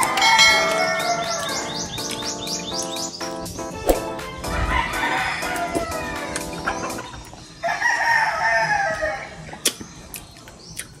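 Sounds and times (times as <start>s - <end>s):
rooster crowing: 0.0s - 2.0s, 4.5s - 6.4s, 7.6s - 9.4s.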